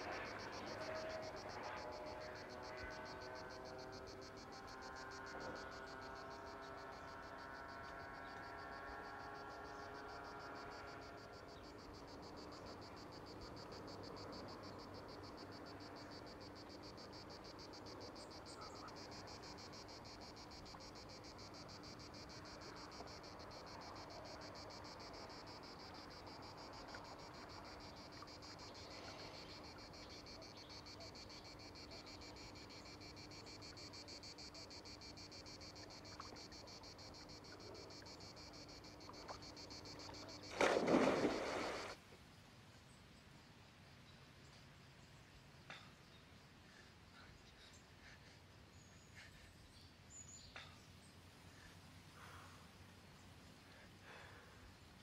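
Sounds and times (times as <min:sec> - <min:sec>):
faint droning tone: 0:00.0 - 0:42.0
insects chirring: 0:00.0 - 0:42.0.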